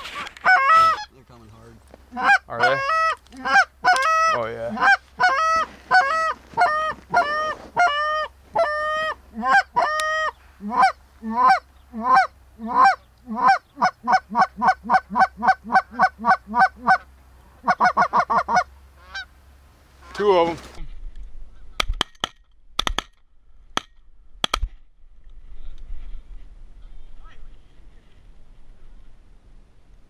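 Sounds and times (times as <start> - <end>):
goose call honks and clucks: 0.0 - 1.2, 2.1 - 19.3, 20.0 - 20.6.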